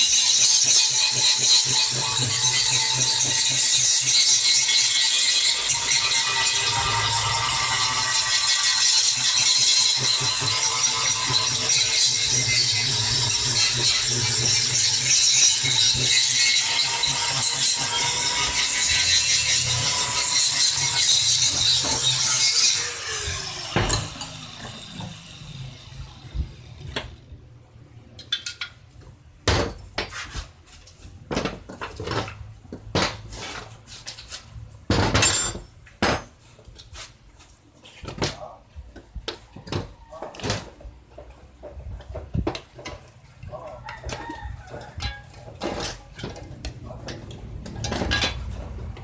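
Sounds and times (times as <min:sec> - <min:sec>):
angle grinder grinding steel: 0:00.0 - 0:27.2
clinks of steel parts and tools: 0:28.2 - 0:28.8, 0:35.2 - 0:35.8.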